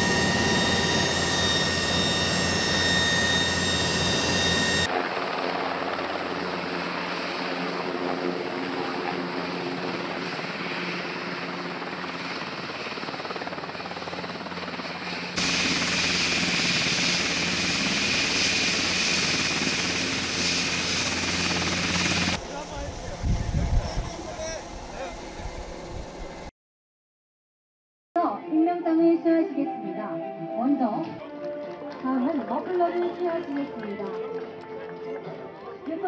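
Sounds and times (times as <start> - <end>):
helicopter rotor noise: 0.0 - 26.5
helicopter turbine whine: 0.0 - 26.5.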